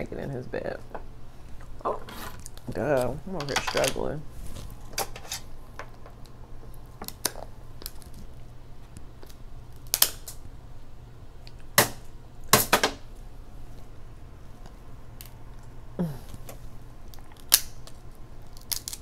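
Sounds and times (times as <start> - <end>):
shears cracking crab shell: 9.2 - 10.4, 16.4 - 19.0.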